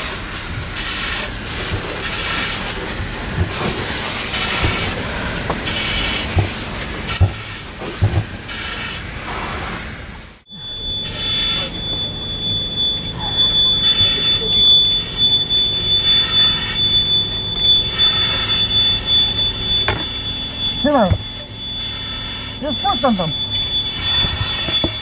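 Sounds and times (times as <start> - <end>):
dull knocks: 6.3 - 8.4
steady high tone: 10.5 - 25.0.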